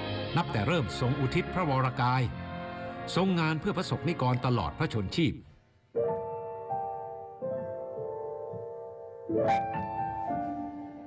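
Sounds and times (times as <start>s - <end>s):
slow sad piano chords: 6.0s - 11.0s.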